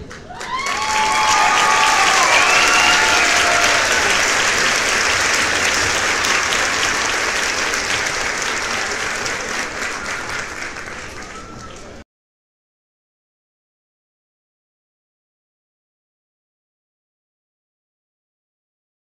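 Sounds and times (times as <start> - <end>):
spectators clapping: 0.0 - 12.0.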